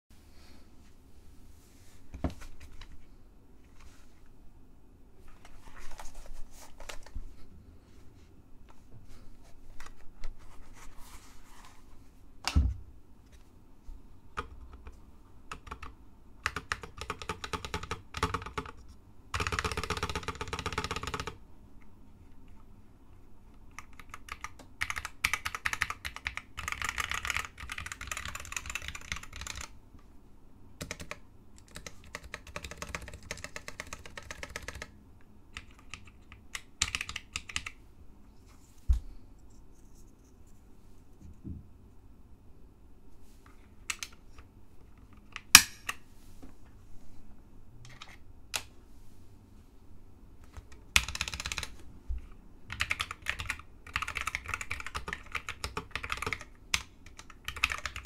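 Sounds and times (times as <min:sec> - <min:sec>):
mechanical keyboard typing: 0:15.5 - 0:21.4, 0:23.7 - 0:29.7, 0:30.8 - 0:35.0, 0:35.6 - 0:37.8, 0:50.6 - 0:51.8, 0:52.7 - 0:58.0.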